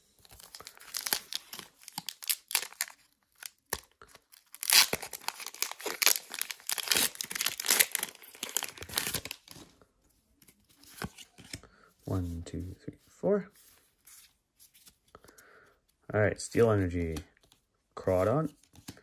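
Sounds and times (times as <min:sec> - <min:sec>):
foil wrapper crinkling and tearing: 0:00.2 - 0:09.5.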